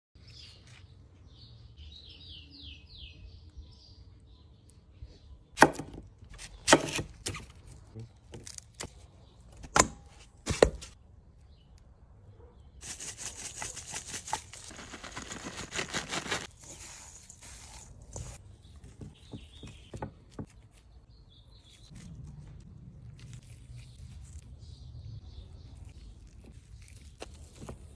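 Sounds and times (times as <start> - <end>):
birds chirping: 11.3 - 22.0
dense crackling crunching: 12.8 - 18.4.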